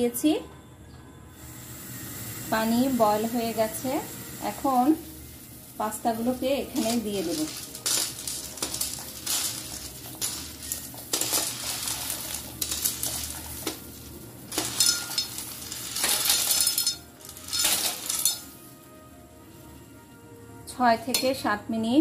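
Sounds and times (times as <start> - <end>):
dry pasta clinking and rattling: 5.7 - 19.0.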